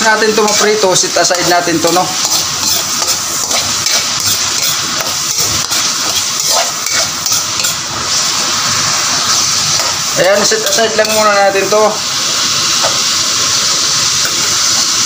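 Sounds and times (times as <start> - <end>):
vegetables sizzling in oil: 0.0 - 15.0
metal spoon scraping a wok: 0.2 - 11.4.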